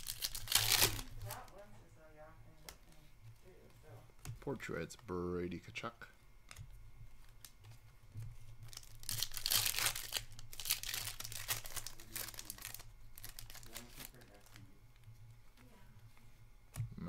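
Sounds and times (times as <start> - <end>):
foil wrapper crinkling: 0.0 - 1.6, 8.4 - 15.1.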